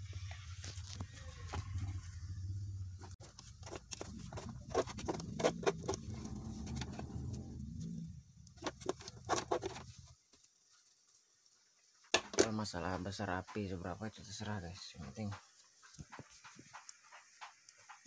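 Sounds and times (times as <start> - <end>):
low steady rumble: 0.0 - 3.2, 3.9 - 8.6
wood fire crackling: 0.0 - 18.0.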